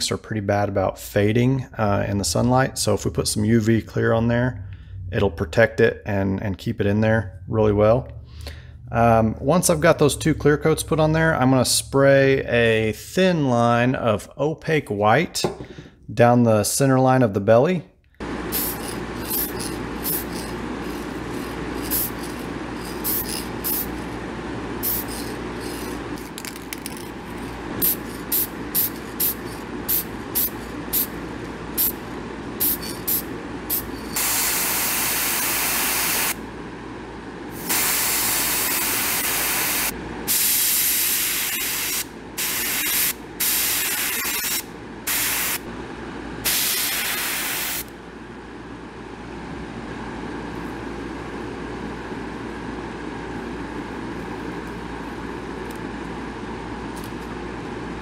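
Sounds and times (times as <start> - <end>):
ventilation fan hum: 0.0 - 58.0
paint sprayer hissing: 18.2 - 24.2, 24.8 - 32.0, 32.6 - 36.4, 37.6 - 45.6, 46.4 - 47.9.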